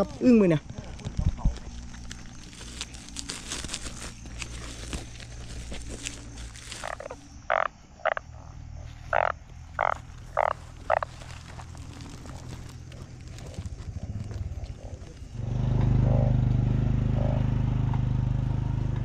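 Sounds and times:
plastic bag rustling: 0.0 - 7.4, 10.0 - 15.3
frog croaking: 0.0 - 17.7.

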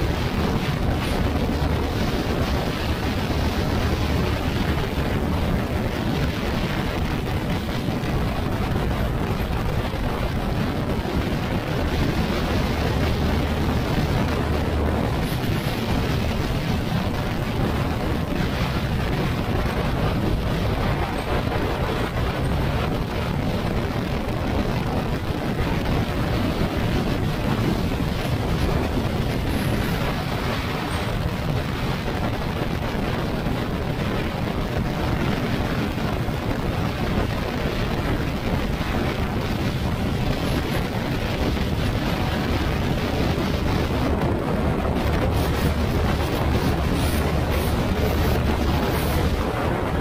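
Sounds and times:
wind noise on microphone: 0.0 - 50.0.

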